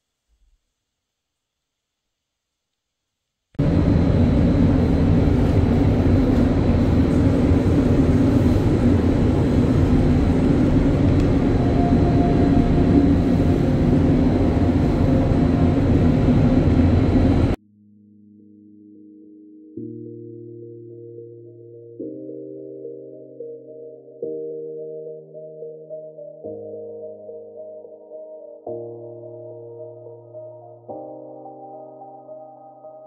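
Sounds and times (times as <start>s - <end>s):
loud mechanical running noise: 3.6s - 17.6s.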